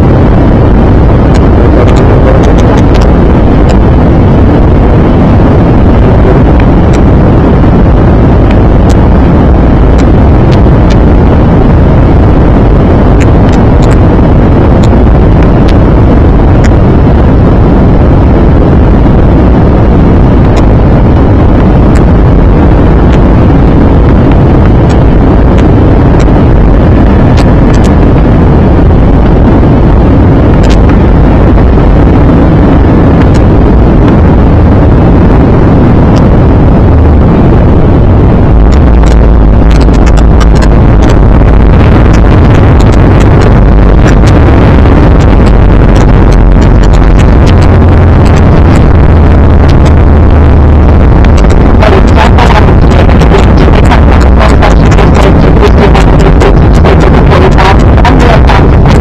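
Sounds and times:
aircraft cabin roar: 0.0 - 59.0
faint clicks: 38.7 - 44.4.

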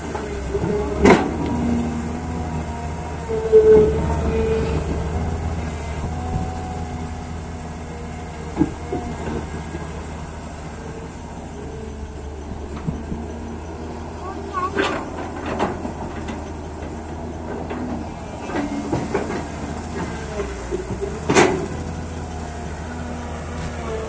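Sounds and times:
diesel engines running: 0.0 - 24.0
excavator digging soil: 0.0 - 24.0
metal clunks: 14.6 - 22.0.

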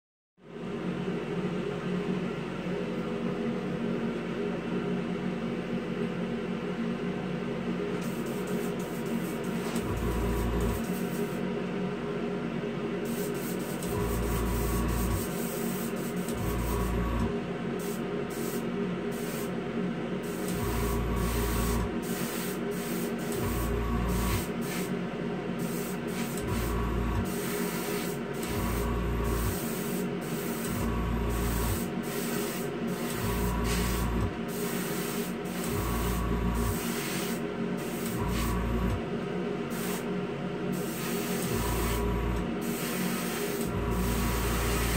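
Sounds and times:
fan and compressor humming: 0.4 - 44.9
airbrush spraying bursts: 8.0 - 11.4, 13.1 - 16.9, 17.8 - 19.5, 20.2 - 24.9, 25.6 - 38.6, 39.7 - 40.1, 40.7 - 42.0, 42.6 - 44.9.

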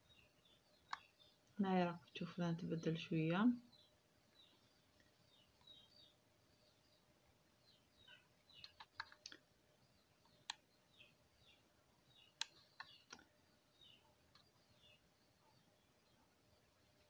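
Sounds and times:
faint birds chirping: 0.0 - 17.0
computer mouse clicking: 8.6 - 9.4, 10.2 - 10.6, 12.4 - 13.3.

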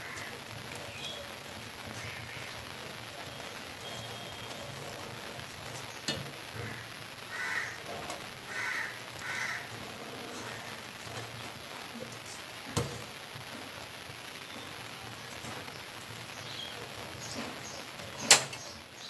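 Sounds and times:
crow cawing: 0.0 - 0.4, 1.9 - 2.6, 6.5 - 10.8
simmering pot hissing: 0.0 - 19.0.

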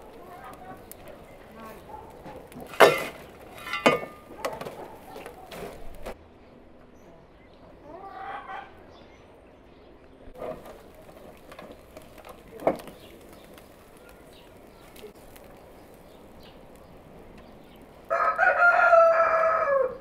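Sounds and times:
rooster crowing: 18.1 - 20.0.

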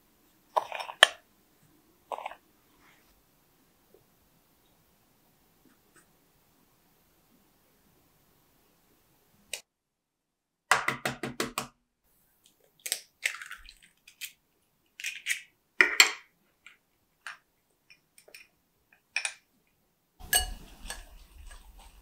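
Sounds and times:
egg cracked over a bowl: 12.8 - 14.4.

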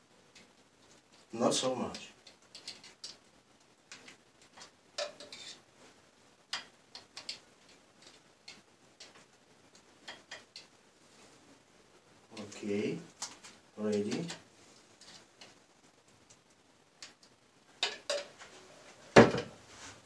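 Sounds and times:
utensil tapping jar and plate: 5.0 - 5.4.

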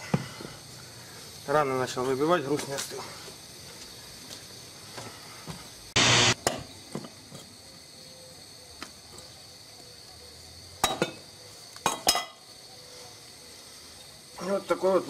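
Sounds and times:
loud burst of noise: 5.9 - 6.4.

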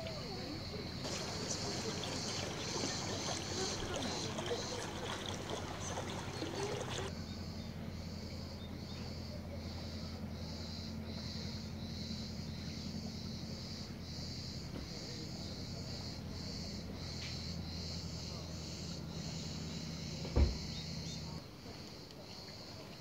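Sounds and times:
murmur of voices: 0.0 - 7.1
cicadas buzzing: 0.0 - 23.0.

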